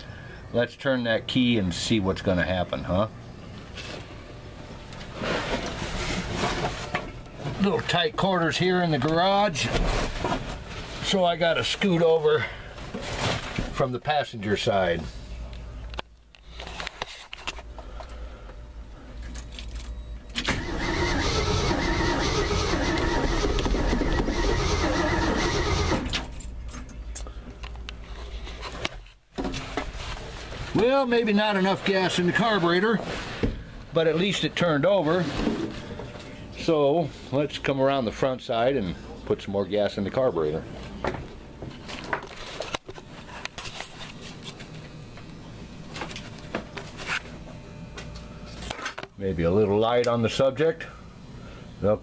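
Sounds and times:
starter cranking engine: 0:20.4 - 0:26.2.

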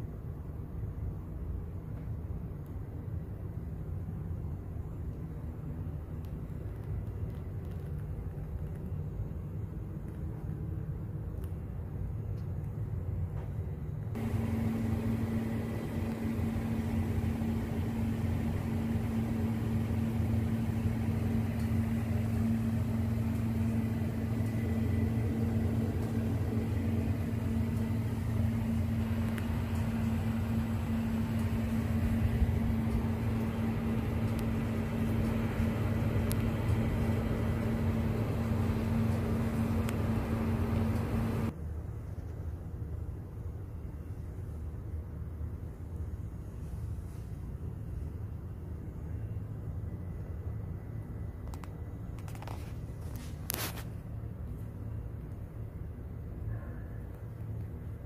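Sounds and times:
low machine hum: 0:00.0 - 0:42.2
distant city traffic rumble: 0:00.0 - 0:58.0.

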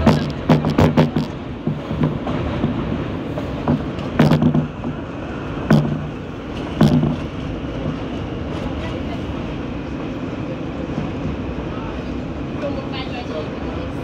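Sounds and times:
wheels clacking over track: 0:00.0 - 0:09.6
train rumbling: 0:00.0 - 0:14.0.

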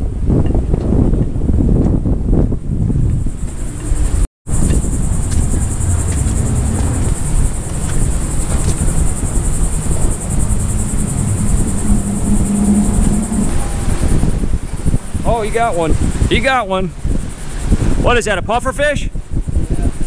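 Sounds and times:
wind rumbling on microphone: 0:00.0 - 0:20.0
insects buzzing: 0:03.1 - 0:18.0.

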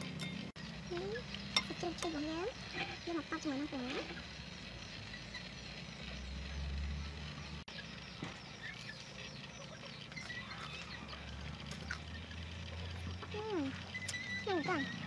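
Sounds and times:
birds chirping: 0:00.0 - 0:15.0
crunchy food being chewed: 0:10.2 - 0:13.2.

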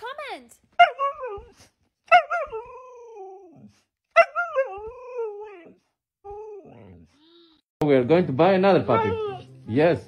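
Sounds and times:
dog yelp: 0:00.8 - 0:02.8, 0:04.1 - 0:05.7, 0:08.9 - 0:09.5.

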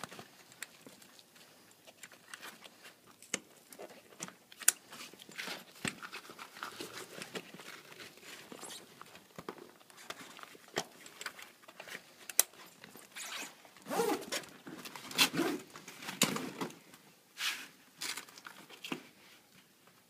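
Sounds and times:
zipper being pulled: 0:13.1 - 0:14.4.

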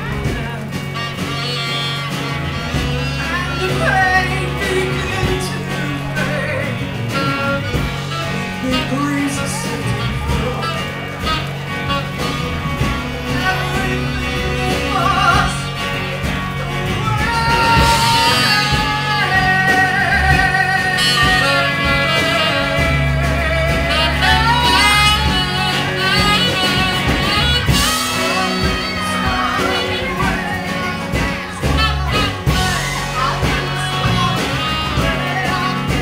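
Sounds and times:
bass guitar: 0:00.0 - 0:36.0
electric guitar: 0:00.0 - 0:36.0
live rock band playing: 0:00.0 - 0:36.0.

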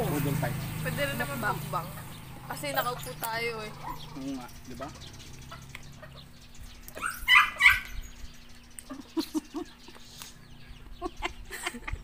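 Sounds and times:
dog barking: 0:03.7 - 0:04.2, 0:07.0 - 0:08.0.

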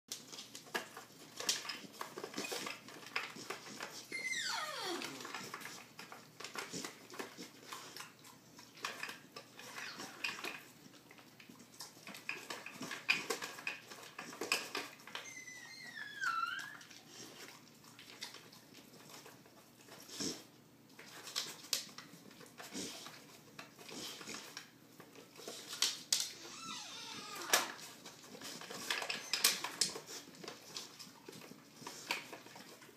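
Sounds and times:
plastic feeder parts clicking and rattling: 0:00.1 - 0:04.0, 0:12.0 - 0:15.2, 0:27.4 - 0:32.9
falling squeak: 0:04.1 - 0:05.2, 0:15.2 - 0:16.9, 0:26.4 - 0:27.5
dog licking: 0:16.6 - 0:25.8.

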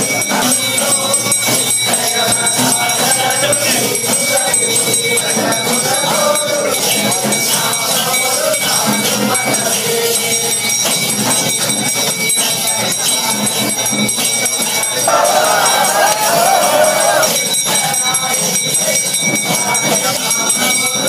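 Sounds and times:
bells ringing: 0:00.0 - 0:21.0
crowd chanting and calling: 0:00.4 - 0:09.0, 0:14.9 - 0:18.3.

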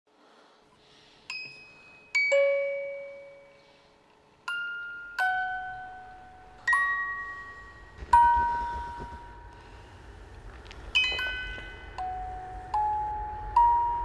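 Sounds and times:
bell-like struck notes: 0:01.3 - 0:03.8, 0:04.4 - 0:10.0, 0:10.9 - 0:14.0.

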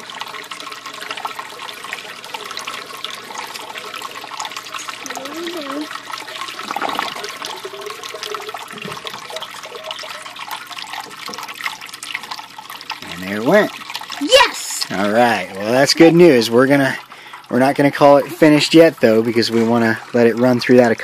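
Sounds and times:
water rushing down a siphon: 0:00.0 - 0:14.9.

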